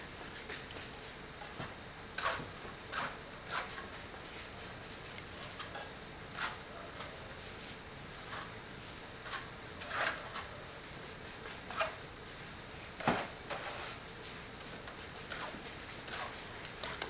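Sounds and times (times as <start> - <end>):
trowels scraping wet cement: 9.2 - 10.5, 15.2 - 17.0.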